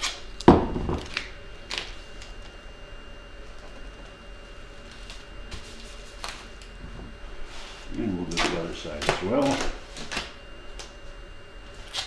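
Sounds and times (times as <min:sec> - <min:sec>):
faint steady hum: 0:00.0 - 0:12.0
tape rustling on bubble wrap: 0:03.4 - 0:06.8, 0:07.4 - 0:11.0.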